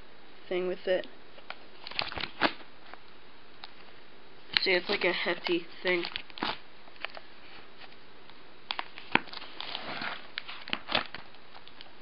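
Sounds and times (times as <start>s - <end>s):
booklet pages rustling: 1.4s - 3.0s, 4.5s - 8.0s, 8.7s - 12.0s.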